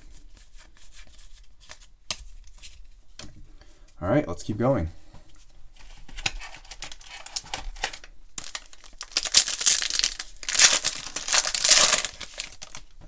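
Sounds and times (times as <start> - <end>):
foil wrapper crinkling and tearing: 6.4 - 13.0.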